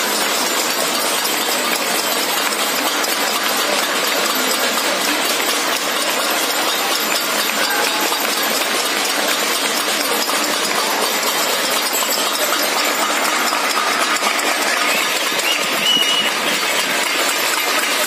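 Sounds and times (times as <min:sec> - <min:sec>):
banging metal plates and utensils: 0:00.0 - 0:18.0
crowd clapping: 0:00.0 - 0:18.0.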